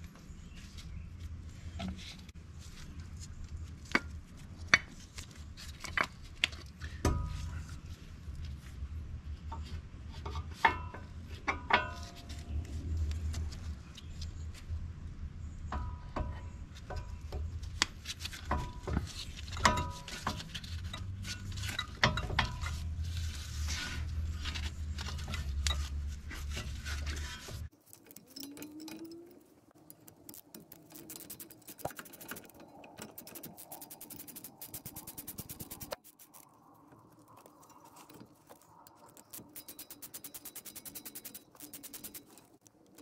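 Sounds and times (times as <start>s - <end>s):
ratchet wrench clicking: 29.8s - 36.4s, 39.1s - 43.0s.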